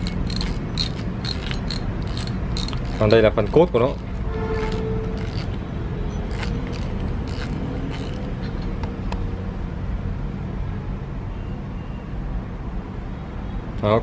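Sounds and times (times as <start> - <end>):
fishing reel spool clicks: 0.0 - 5.6, 6.3 - 8.3.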